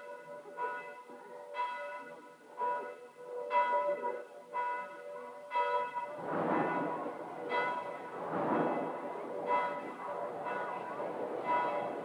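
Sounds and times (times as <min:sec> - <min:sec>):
church bells ringing: 0:00.0 - 0:12.0.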